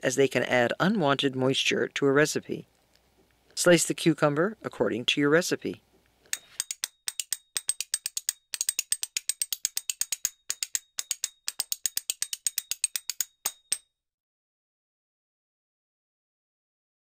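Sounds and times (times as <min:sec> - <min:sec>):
rapid high ticking clicks: 0:06.3 - 0:13.8.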